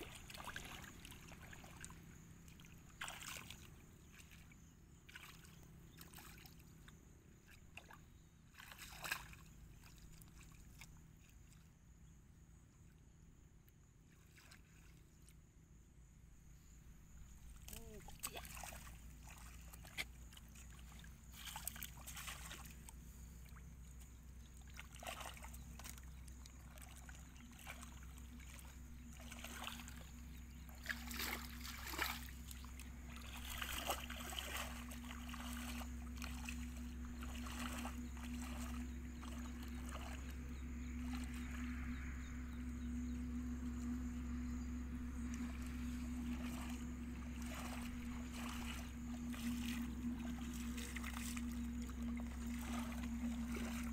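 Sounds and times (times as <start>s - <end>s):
splashing in shallow muddy water: 0.0s - 13.0s, 13.8s - 53.9s
steady motor hum: 0.0s - 13.9s, 14.9s - 53.9s.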